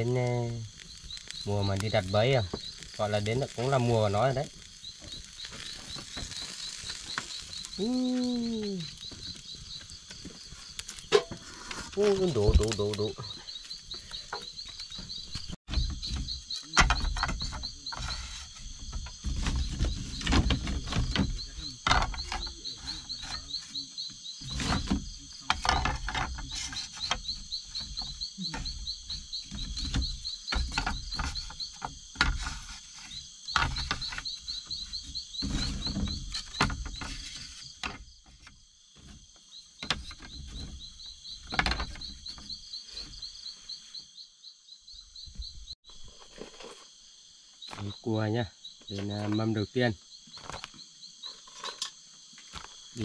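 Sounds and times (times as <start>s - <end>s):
night insects trilling: 0.0s - 53.0s
knocks and clatter of handling: 9.0s - 23.8s, 24.4s - 43.3s.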